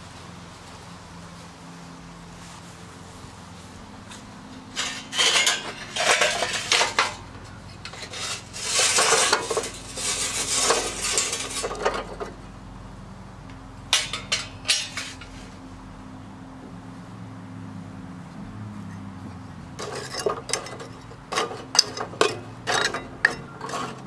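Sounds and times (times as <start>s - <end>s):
briquettes clattering onto grate: 4.7s - 12.4s, 13.9s - 15.4s, 19.8s - 24.0s
chimney starter clanking on grill: 4.7s - 12.4s, 13.9s - 15.3s, 19.8s - 24.0s.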